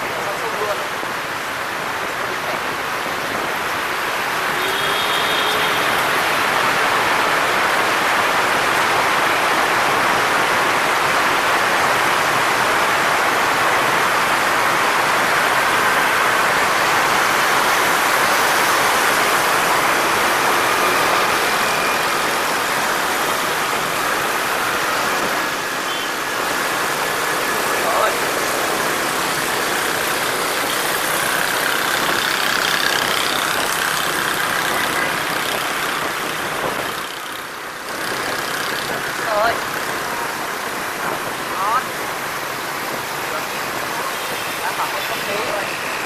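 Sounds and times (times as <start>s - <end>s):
motorbike and car traffic hum: 0.0s - 46.0s
wind rushing on microphone: 29.4s - 37.1s.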